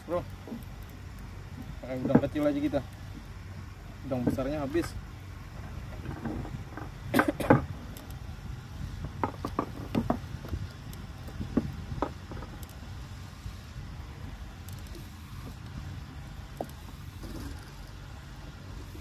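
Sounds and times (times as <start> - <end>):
fishing line spool ticks: 0.0 - 5.0, 5.8 - 8.4, 9.0 - 18.1
low steady rumble: 0.0 - 19.0
knocks in wooden boat: 9.2 - 10.3.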